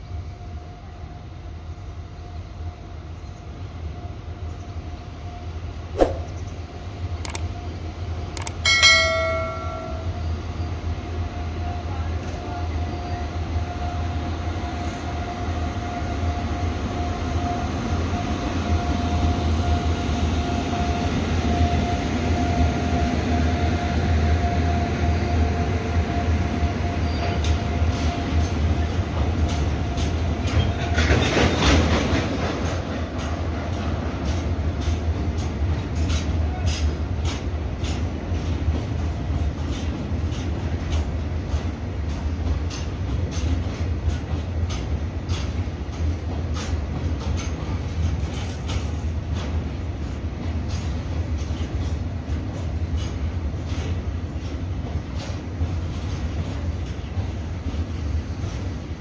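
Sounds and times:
freight train rumbling past: 0.0 - 59.0
wheels clicking over rail joints: 29.2 - 58.8.

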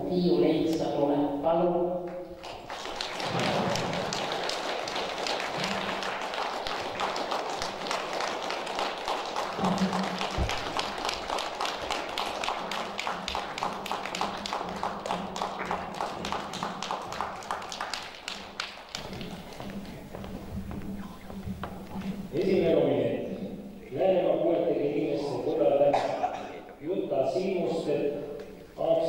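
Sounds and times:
audience applauding: 2.1 - 22.4
rhythmic clapping: 2.1 - 22.7.

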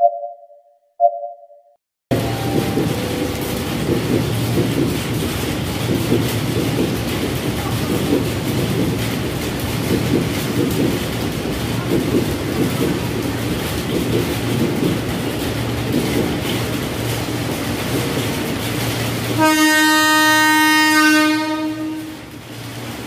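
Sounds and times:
train rumbling on rails: 2.1 - 23.0
train horn blast: 19.3 - 22.3.

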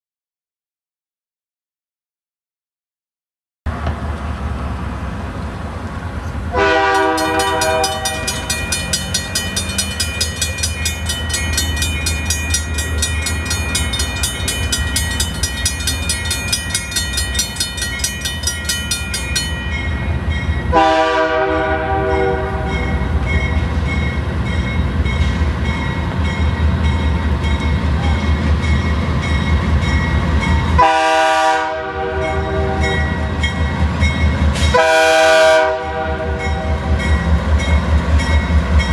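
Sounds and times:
locomotive engine rumbling: 3.7 - 38.9
locomotive air horn: 6.5 - 8.4, 20.7 - 22.9, 30.8 - 33.0, 34.7 - 37.0
crossing bell ringing: 6.8 - 31.4, 32.0 - 38.9.

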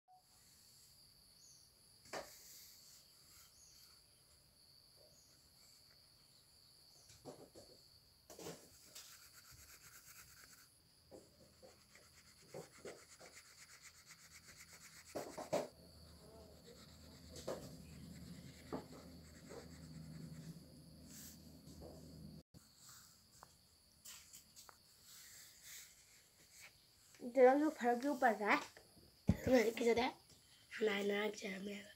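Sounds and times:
drawing tool scratching on paper: 8.7 - 10.7, 11.5 - 21.4.

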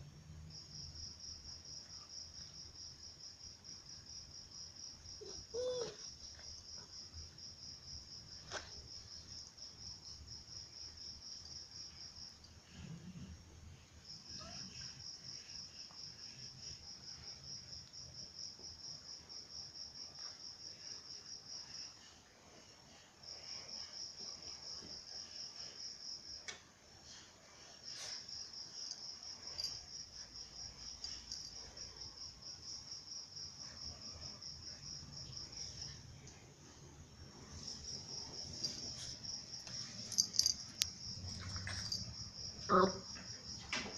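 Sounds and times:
insect chirping: 27.1 - 43.9.

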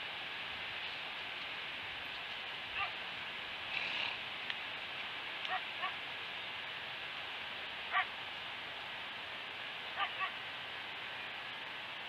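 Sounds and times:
steady outdoor hiss: 0.0 - 12.0
distant animal calls: 5.5 - 6.0, 7.9 - 8.1.

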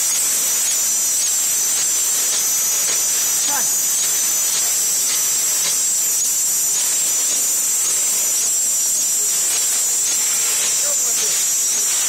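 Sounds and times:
packing machine hissing: 0.0 - 7.8, 9.2 - 12.0.

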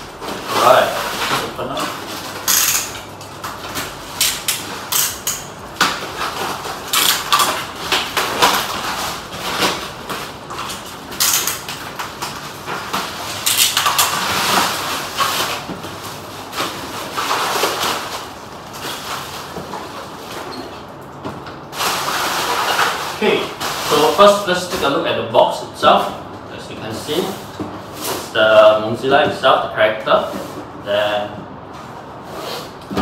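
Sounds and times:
bubble wrap crinkling: 0.0 - 4.9, 5.6 - 20.9, 21.7 - 24.9.

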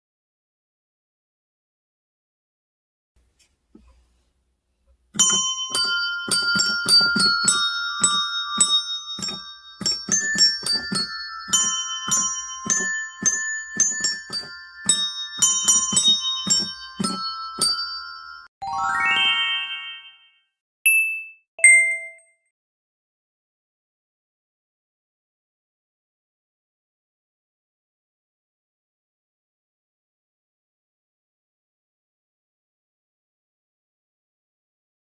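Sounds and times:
bell-like melody: 5.2 - 22.4
chime dings: 5.2 - 22.4
rising glissando sweep: 18.6 - 20.0.

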